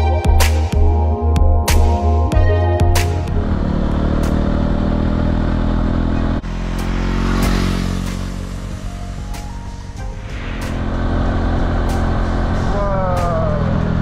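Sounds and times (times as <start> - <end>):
motorbike engine riding: 3.2 - 10.0
motorbike passing by road: 3.3 - 14.0.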